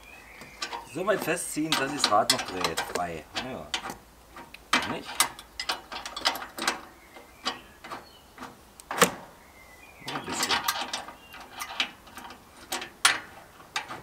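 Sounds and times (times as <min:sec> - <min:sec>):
wrench clicking and scraping: 0:00.4 - 0:06.9.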